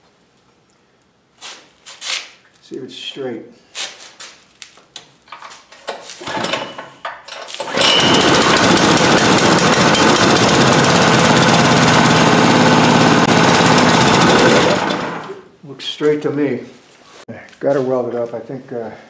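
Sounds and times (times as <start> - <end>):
small engine starting and running: 6.2 - 6.8, 7.5 - 15.5.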